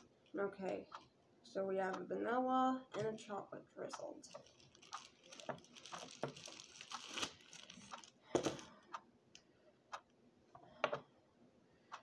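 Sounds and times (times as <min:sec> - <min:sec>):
plastic packaging crinkling: 0:04.3 - 0:08.7.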